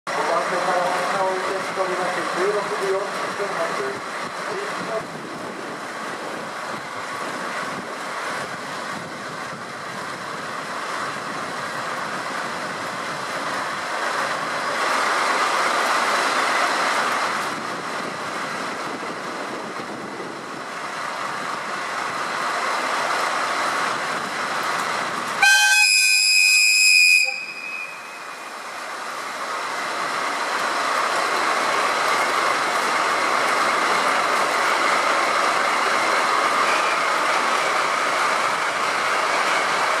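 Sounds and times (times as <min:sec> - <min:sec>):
diesel locomotive running: 0:00.1 - 0:40.0
locomotive horn blast: 0:25.4 - 0:28.2.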